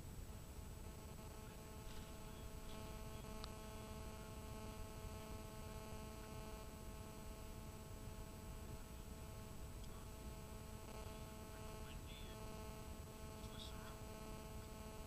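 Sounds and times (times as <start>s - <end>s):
faint electrical hum: 0.0s - 15.0s
faint ticks: 1.4s - 3.6s, 9.8s - 10.0s.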